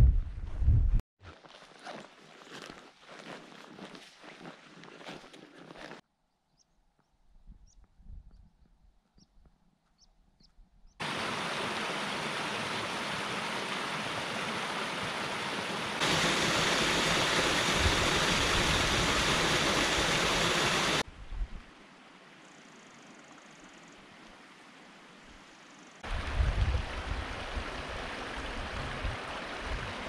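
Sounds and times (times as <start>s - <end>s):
small waterfall rushing: 11.0s - 21.1s, 26.0s - 30.0s.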